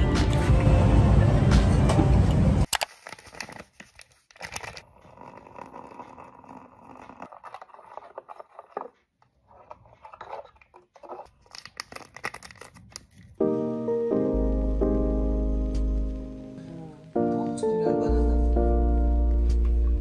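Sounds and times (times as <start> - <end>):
sachet crinkling and rattling: 2.7 - 5.6, 11.2 - 13.4.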